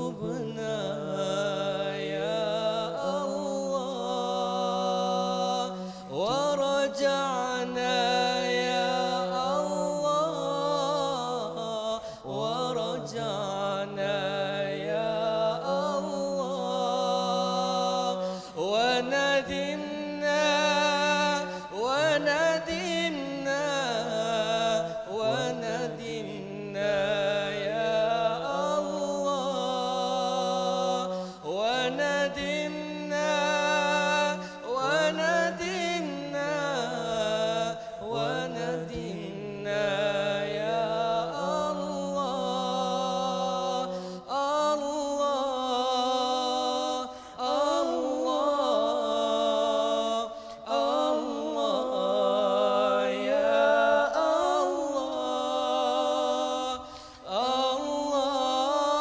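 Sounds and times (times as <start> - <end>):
men chanting together: 0.0 - 59.0
lead voice chanting: 21.1 - 26.6.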